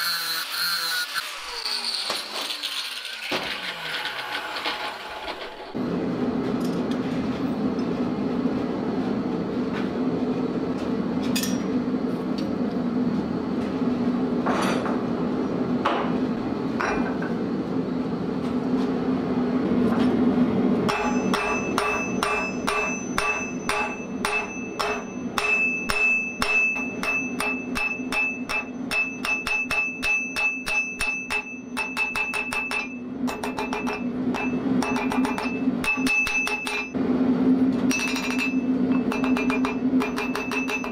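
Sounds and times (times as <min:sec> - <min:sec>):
forge humming: 0:00.0 - 0:40.9
hammer striking steel on anvil: 0:11.4 - 0:11.7, 0:20.9 - 0:37.0, 0:37.9 - 0:40.9.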